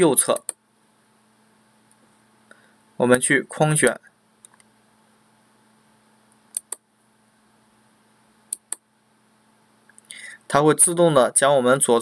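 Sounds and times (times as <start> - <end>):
computer mouse clicks: 0.3 - 0.6, 3.8 - 4.7, 6.5 - 6.8, 8.5 - 8.8.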